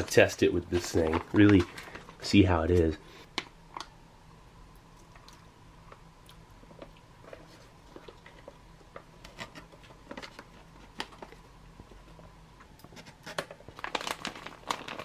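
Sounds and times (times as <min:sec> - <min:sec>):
plastic pouch crinkling: 0:00.0 - 0:02.4, 0:13.0 - 0:15.0
pouch crackling: 0:13.3 - 0:15.0.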